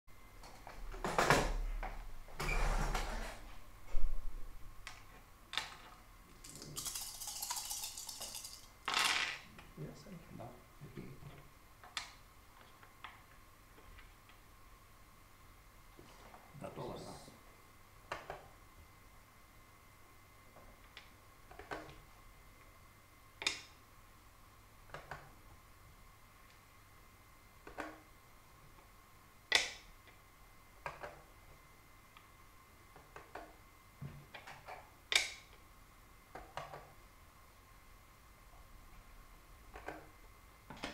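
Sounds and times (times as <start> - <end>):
wooden pieces clicking on a board: 4.9 - 9.4, 23.4 - 23.7, 29.5 - 29.9, 34.3 - 35.5.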